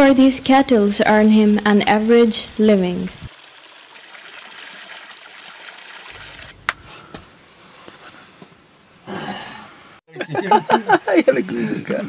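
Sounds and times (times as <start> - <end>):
water trickling into stone pool: 3.3 - 6.8.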